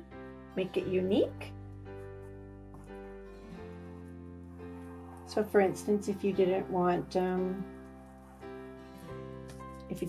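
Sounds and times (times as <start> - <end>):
soft background music: 0.0 - 10.0.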